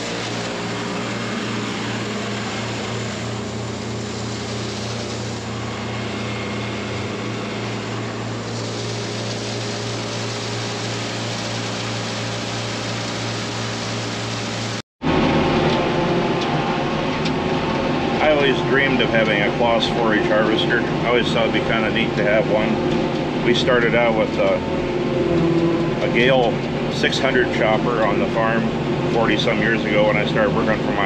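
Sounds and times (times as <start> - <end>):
steady rushing noise: 0.0 - 13.3, 13.9 - 31.0
tractor engine running: 0.0 - 31.0.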